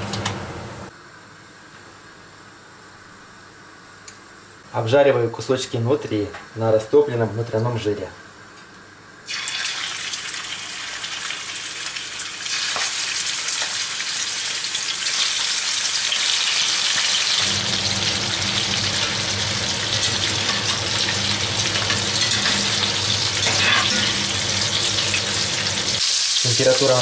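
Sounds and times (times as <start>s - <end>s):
meat sizzling in a skillet: 9.3s - 27.0s.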